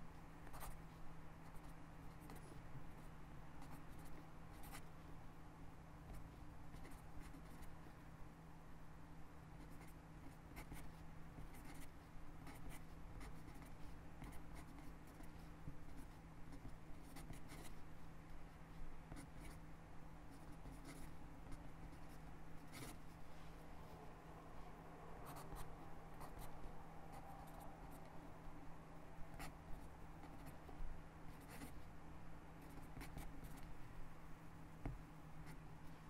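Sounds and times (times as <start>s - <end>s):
low steady hum: 0.0s - 36.0s
pen scratching on paper: 0.4s - 5.0s, 6.0s - 7.9s, 9.6s - 19.6s, 20.3s - 23.2s, 25.2s - 28.1s, 29.3s - 31.9s, 32.6s - 33.7s.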